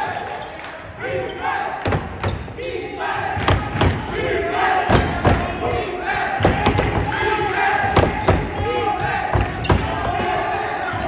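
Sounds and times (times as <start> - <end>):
crowd and players shouting: 0.0 - 11.0
basketball bouncing: 7.8 - 10.3.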